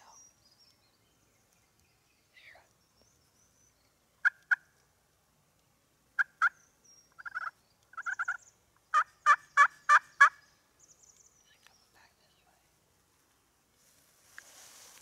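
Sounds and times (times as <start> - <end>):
wild turkey calling: 3.4 - 4.9, 6.1 - 10.5.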